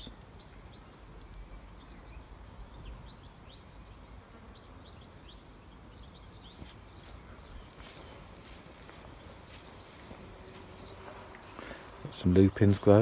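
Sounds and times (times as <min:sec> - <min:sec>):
small birds chirping and singing: 0:00.0 - 0:13.0.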